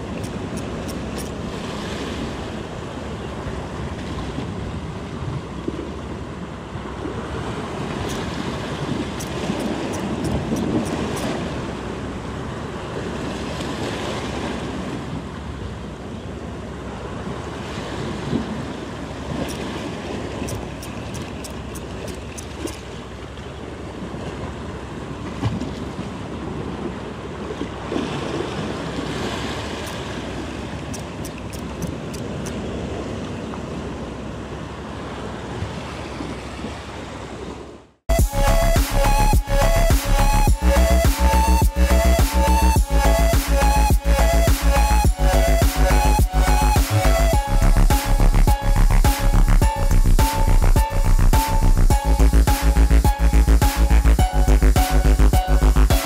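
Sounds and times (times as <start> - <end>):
sea waves washing over rocks: 0.0 - 15.8, 16.6 - 37.8
fishing reel clicking: 9.2 - 11.3, 20.5 - 22.8.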